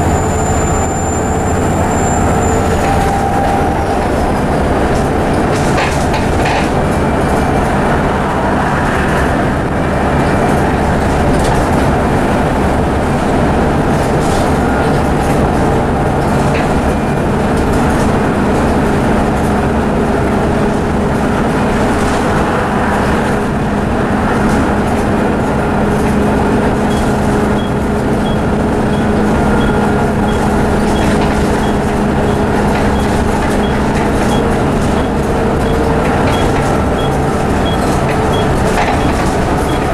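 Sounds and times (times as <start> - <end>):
bus diesel engine: 0.0 - 39.9
road noise and body rattle: 0.0 - 39.9.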